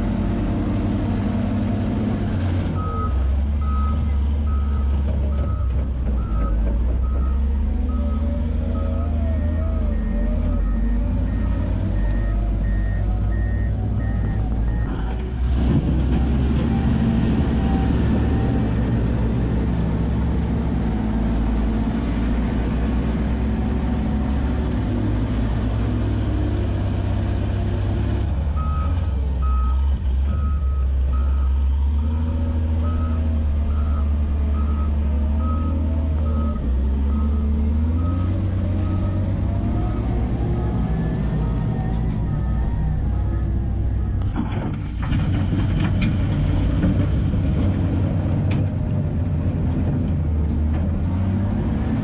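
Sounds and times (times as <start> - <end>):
diesel engine revving: 0.0 - 52.0
reversing alarm beeps: 2.8 - 14.9, 41.2 - 44.2.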